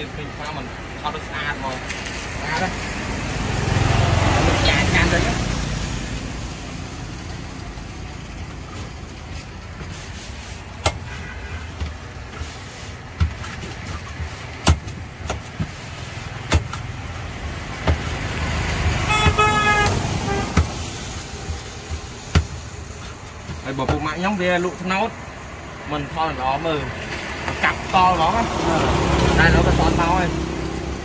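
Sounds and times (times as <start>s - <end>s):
street traffic rumble: 0.0s - 31.0s
sharp knocks: 10.8s - 11.1s, 13.1s - 15.8s, 16.4s - 17.0s, 17.8s - 18.5s, 19.1s - 24.2s
vehicle horn tooting: 11.0s - 11.8s, 19.0s - 20.6s.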